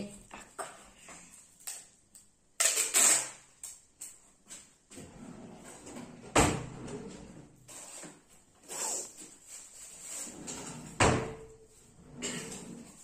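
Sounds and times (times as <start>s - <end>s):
sticky tape ripping off roll: 2.6s - 3.8s.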